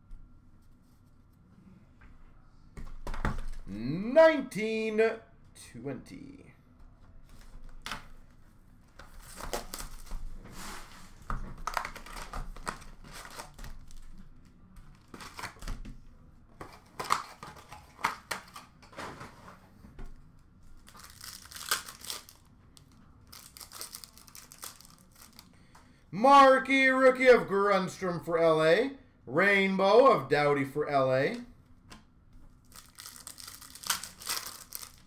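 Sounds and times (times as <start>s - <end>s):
card pack wrappers crinkling: 9.2s - 10.2s, 11.6s - 14.1s, 20.8s - 25.5s, 32.6s - 35.0s.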